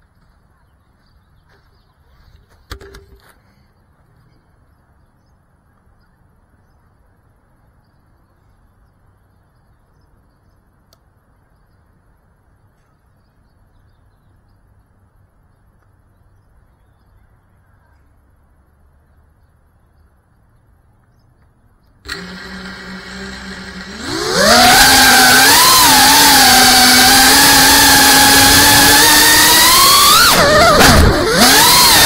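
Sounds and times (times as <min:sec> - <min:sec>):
faint bird chirps: 0:03.4 - 0:18.4
drone crashing clatter: 0:28.2 - 0:32.0.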